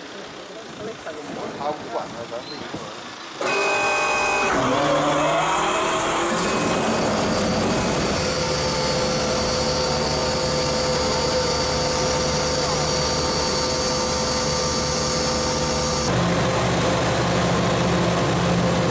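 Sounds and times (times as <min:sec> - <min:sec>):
diesel generator running: 0:00.0 - 0:18.9
steady high whine: 0:05.8 - 0:18.9.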